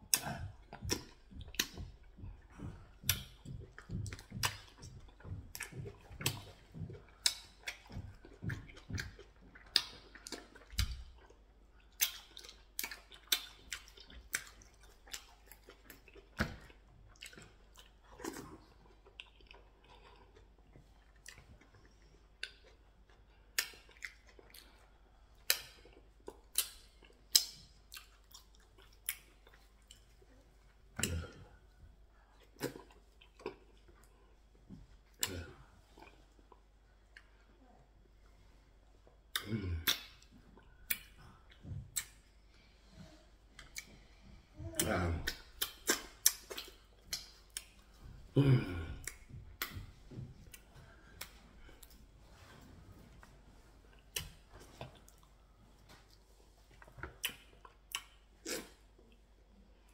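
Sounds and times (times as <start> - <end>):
mouth smacks while chewing: 0.1 - 31.6, 32.2 - 37.6, 39.0 - 42.3, 42.9 - 59.9.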